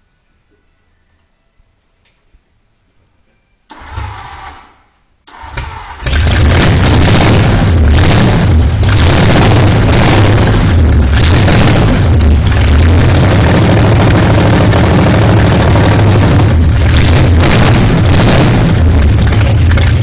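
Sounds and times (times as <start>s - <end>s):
car engine starting and running: 3.7s - 20.0s.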